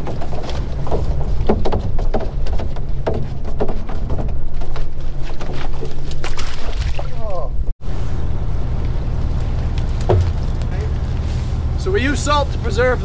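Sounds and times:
plastic barrel knocks and scrapes: 0.0 - 6.4, 10.0 - 10.7
boat engine idling: 7.6 - 13.0.

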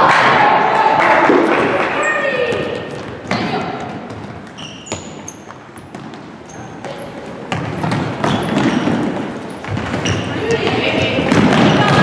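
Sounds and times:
soccer ball kicks and bounces: 2.5 - 12.0
short high squeaks: 4.6 - 5.5.

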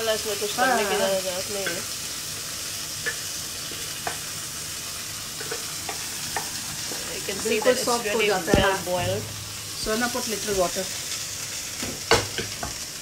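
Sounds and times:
peas sizzling in oil: 0.0 - 13.0
spoon tapping a pan: 1.6 - 1.9, 3.0 - 4.3, 5.3 - 6.6, 11.8 - 12.8
person speaking: 7.0 - 10.9.

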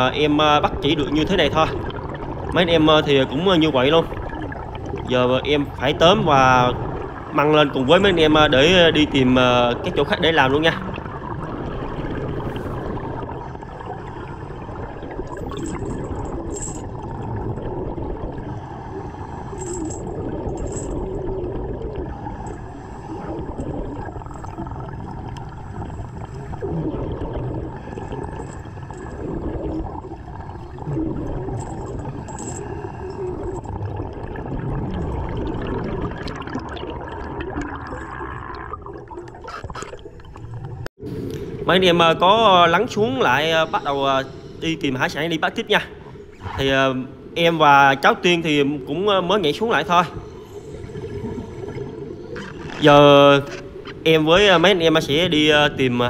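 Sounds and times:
water churning and gurgling: 0.0 - 56.0.

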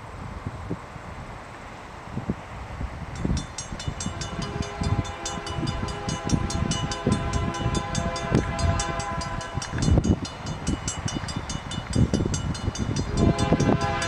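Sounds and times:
level-crossing bell ringing: 3.4 - 13.3
locomotive horn blast: 4.0 - 9.8, 13.1 - 14.0.

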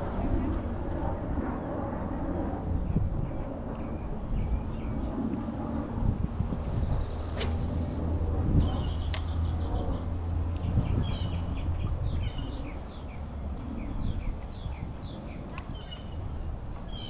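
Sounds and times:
low steady rumble: 0.0 - 17.0.

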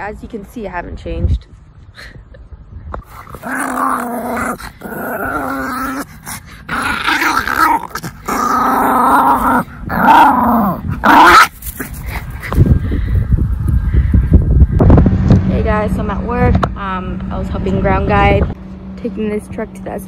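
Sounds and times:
small dog growling: 3.0 - 12.4.

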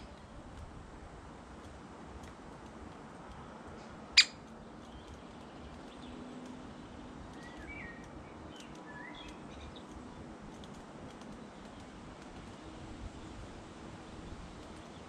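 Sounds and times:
woodpecker sharp call: 4.2 - 4.4
faint small-bird chirps: 7.3 - 10.0.

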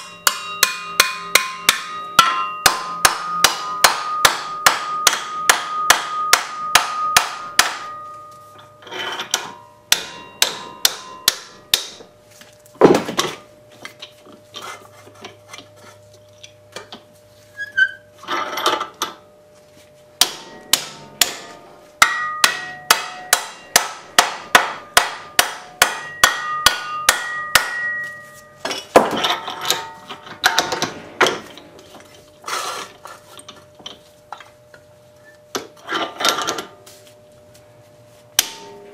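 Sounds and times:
hammer striking sheet metal: 0.0 - 8.3, 9.3 - 12.0, 20.2 - 31.4, 38.4 - 38.9.

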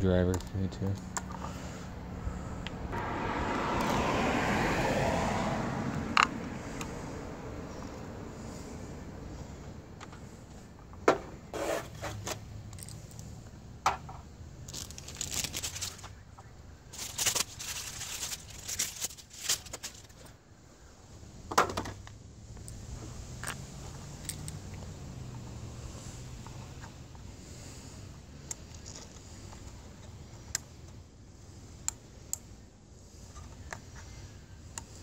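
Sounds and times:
crinkly paper rustling: 14.6 - 20.4.

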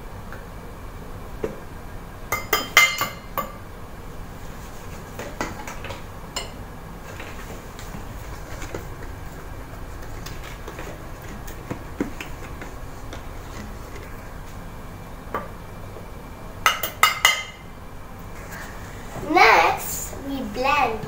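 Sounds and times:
cup scooping flour: 7.0 - 14.2.

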